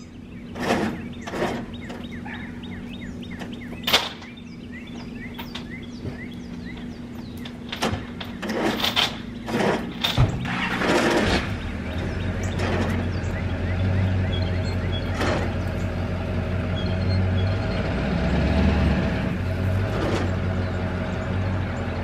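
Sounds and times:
small bird chirping: 0.0 - 8.5, 11.4 - 17.9
steady low hum: 0.0 - 22.0.

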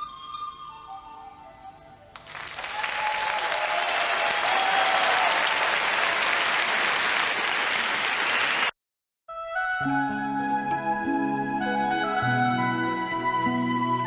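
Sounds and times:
crowd applauding: 2.2 - 8.8.

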